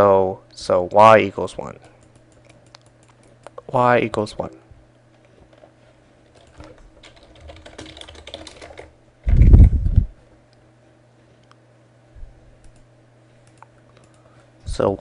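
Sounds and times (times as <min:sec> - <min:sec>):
rapid light clicking: 0:01.8 - 0:03.6, 0:12.6 - 0:14.3.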